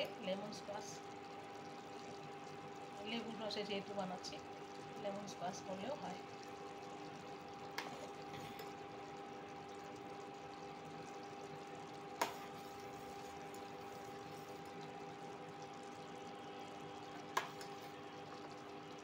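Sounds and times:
syrup bubbling at a boil: 0.0s - 19.0s
spoon stirring in saucepan: 7.8s - 8.9s, 12.0s - 15.0s, 17.2s - 18.2s.

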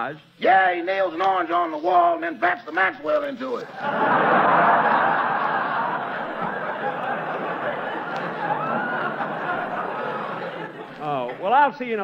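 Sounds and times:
audience laughing: 3.6s - 11.6s.

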